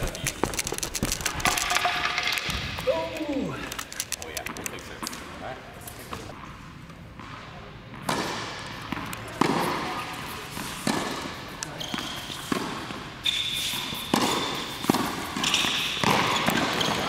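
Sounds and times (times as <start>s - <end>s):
tennis balls struck and bouncing: 6.0s - 17.0s
shoe squeak on court: 10.0s - 17.0s.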